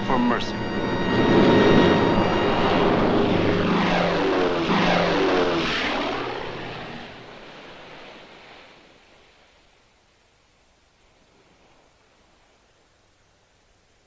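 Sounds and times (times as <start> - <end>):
piston aircraft engines droning: 0.0 - 8.5.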